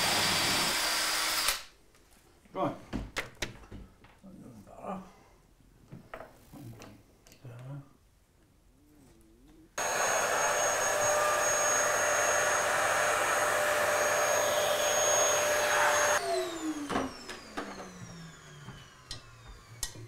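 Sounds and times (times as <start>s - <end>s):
vacuum cleaner whining: 0.0s - 1.7s, 9.8s - 20.0s.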